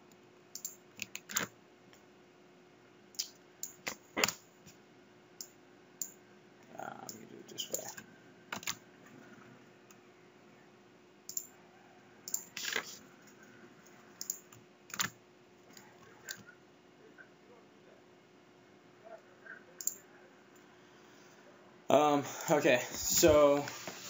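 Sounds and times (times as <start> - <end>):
keyboard keystrokes: 8.5 - 8.8.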